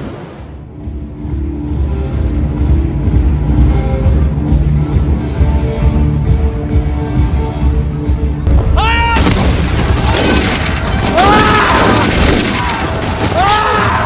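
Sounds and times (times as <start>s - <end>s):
music: 0.0s - 14.0s
bangs: 8.5s - 14.0s
crowd tumult: 8.5s - 14.0s.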